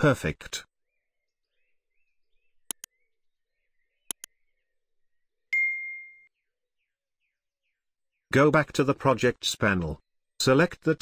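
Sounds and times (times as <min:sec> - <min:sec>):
mouse clicks: 0:02.6 - 0:02.9, 0:04.1 - 0:04.3.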